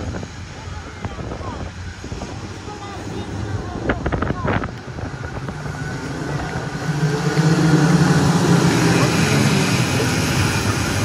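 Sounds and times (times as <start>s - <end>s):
racing kart engine passing: 4.8s - 11.0s.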